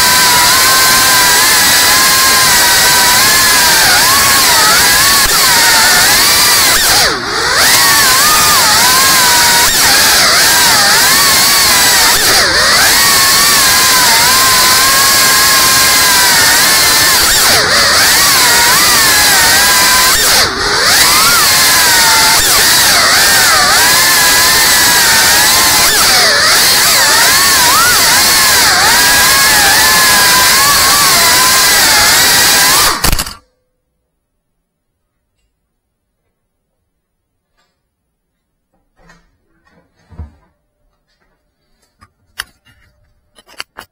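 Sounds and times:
drone motors whining: 0:00.0 - 0:33.4.

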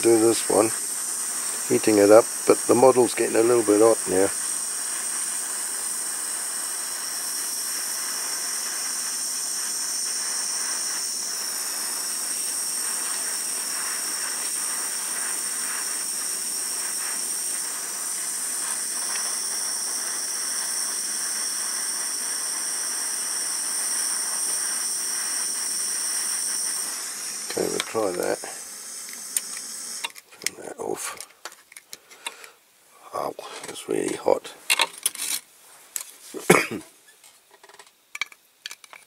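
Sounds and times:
blowtorch hissing: 0:00.0 - 0:31.2.

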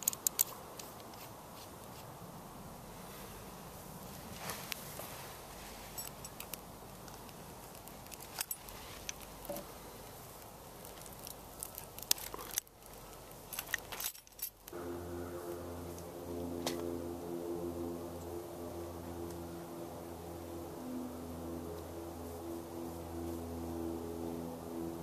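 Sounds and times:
steady hiss: 0:00.0 - 0:16.8.

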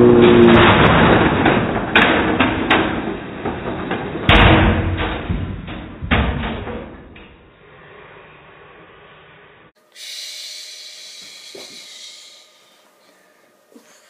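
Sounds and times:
sharp knocks of crashing cars: 0:00.1 - 0:07.4.

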